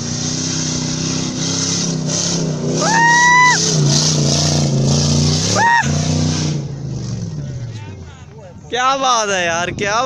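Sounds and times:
car engine running hard: 0:00.0 - 0:08.7
loud whistle: 0:02.8 - 0:03.6.

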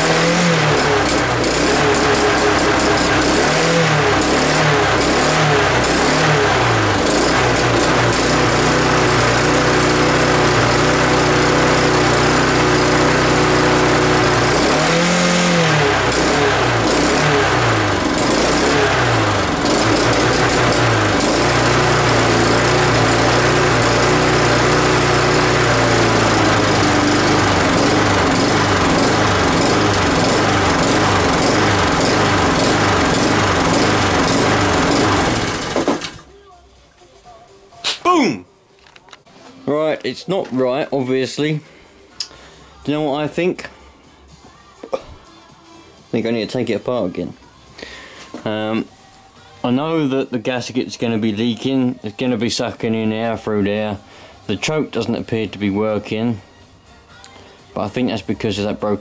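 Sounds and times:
lawn mower engine running unevenly: 0:00.0 - 0:36.3.

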